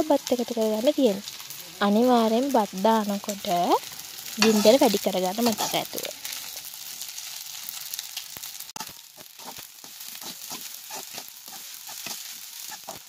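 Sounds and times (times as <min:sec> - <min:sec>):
rice sizzling in hot oil: 0:00.0 - 0:13.0
metal spatula scraping a wok: 0:04.2 - 0:06.4, 0:08.8 - 0:13.0.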